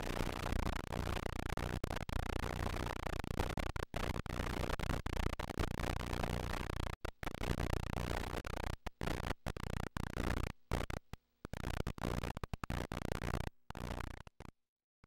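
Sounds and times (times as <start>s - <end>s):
glitchy static noise: 0.0s - 10.5s.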